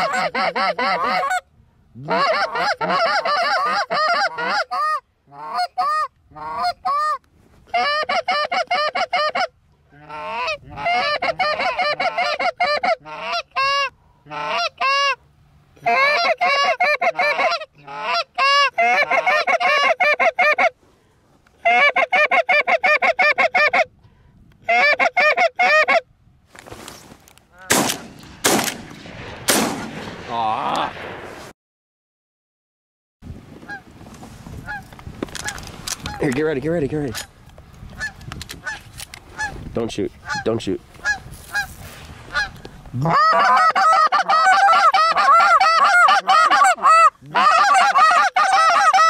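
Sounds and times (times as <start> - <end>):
goose honking and clucking: 0.0 - 15.2, 15.8 - 20.8, 21.6 - 23.9, 24.6 - 26.1, 34.6 - 36.4, 38.0 - 39.6, 40.2 - 49.0.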